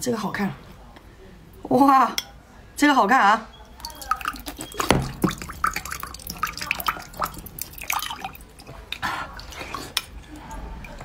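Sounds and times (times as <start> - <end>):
water drops plinking: 3.7 - 8.4.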